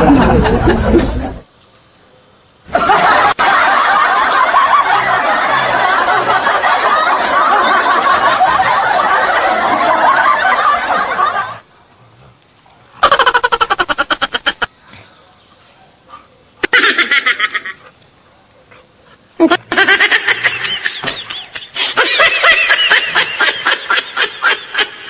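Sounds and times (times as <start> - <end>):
group of people laughing: 0.0 - 1.4, 2.7 - 11.7, 13.0 - 14.7, 16.6 - 18.1, 19.2 - 25.0.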